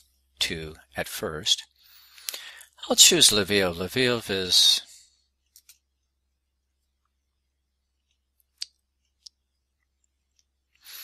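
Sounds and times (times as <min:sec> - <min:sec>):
quiet room hum: 0:00.0 - 0:11.0.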